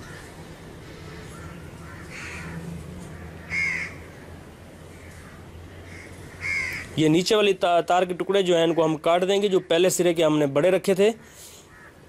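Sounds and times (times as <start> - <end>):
crow cawing: 0.0 - 7.0, 11.6 - 12.0.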